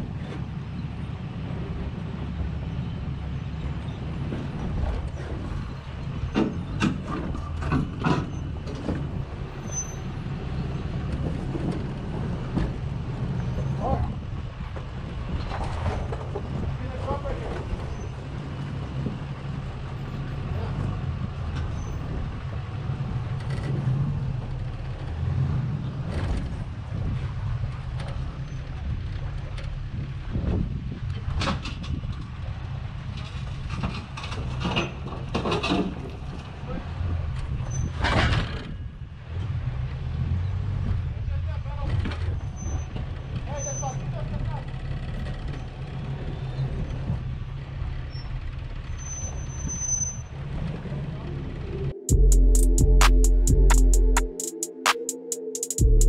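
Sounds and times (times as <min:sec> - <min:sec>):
truck engine running at low speed: 0:00.0 - 0:43.5.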